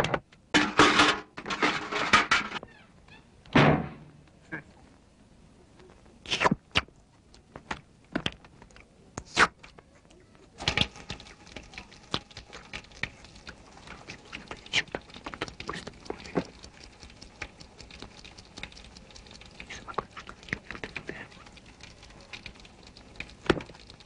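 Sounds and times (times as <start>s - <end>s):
small taps and patters: 5.8s - 24.0s.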